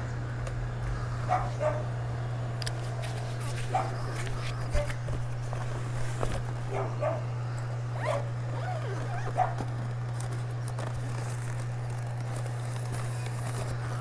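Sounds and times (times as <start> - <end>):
steady low hum: 0.0 - 14.0
dog barking and yelping: 1.3 - 1.9, 3.7 - 4.1, 6.7 - 7.3, 8.0 - 9.6.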